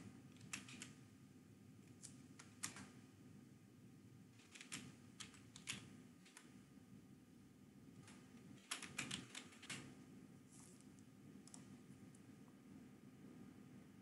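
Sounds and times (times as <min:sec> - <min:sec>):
keyboard keystrokes: 0:00.4 - 0:00.9, 0:02.0 - 0:02.9, 0:04.4 - 0:06.5, 0:08.1 - 0:09.9, 0:11.4 - 0:11.7.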